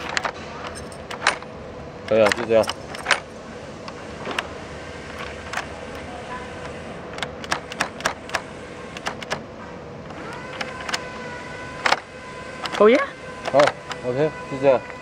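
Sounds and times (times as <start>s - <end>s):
door handle and lock clicking: 0.0s - 1.5s, 2.1s - 3.3s, 7.1s - 9.4s, 10.1s - 11.1s.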